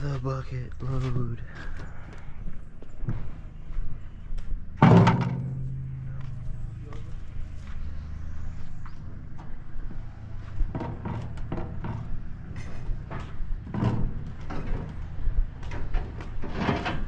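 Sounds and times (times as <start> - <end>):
bucket clanking and rattling: 4.8 - 6.1, 10.7 - 15.1, 15.7 - 17.0
wheelbarrow rumbling on asphalt: 4.8 - 7.4, 10.2 - 17.0.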